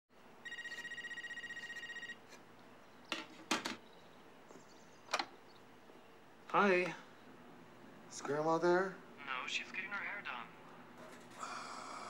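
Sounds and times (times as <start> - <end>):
telephone ringing: 0.4 - 2.3.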